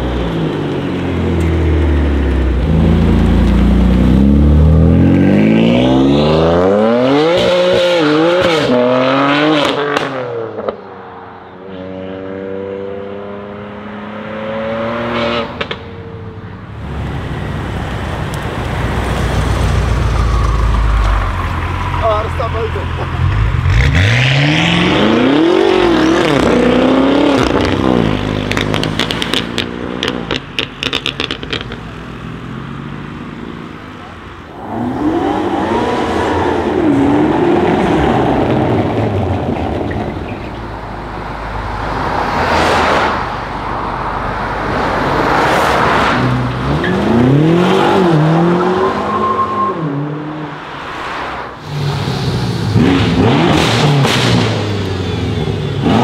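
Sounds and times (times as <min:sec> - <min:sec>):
cars accelerating hard: 0:01.0 - 0:15.8, 0:16.8 - 0:56.0
exhaust pops and crackles: 0:28.4 - 0:32.0.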